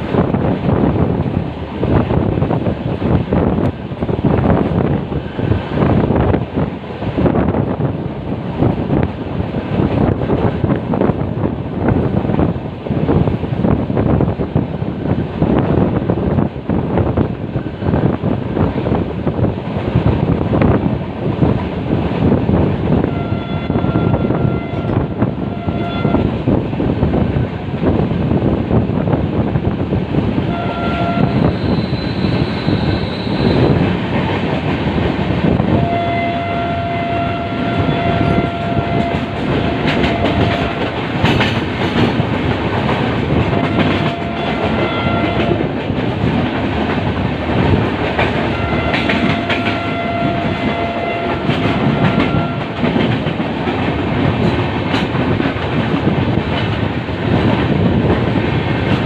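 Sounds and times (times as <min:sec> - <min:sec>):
passing freight train: 0:00.0 - 0:59.0
train rumble and clickety-clack: 0:00.0 - 0:59.0
train horn: 0:23.0 - 0:26.3, 0:30.5 - 0:33.7, 0:35.7 - 0:41.0, 0:43.5 - 0:45.6, 0:48.5 - 0:52.9.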